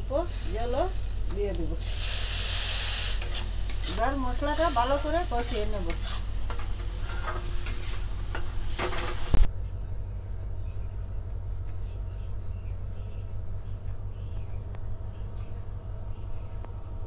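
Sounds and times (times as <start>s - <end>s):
spatula scraping sizzling paste: 0.2s - 9.5s.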